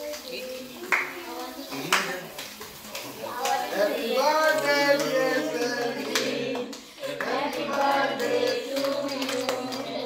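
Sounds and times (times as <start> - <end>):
hands clapping: 0.0 - 10.0
people singing: 3.1 - 10.0.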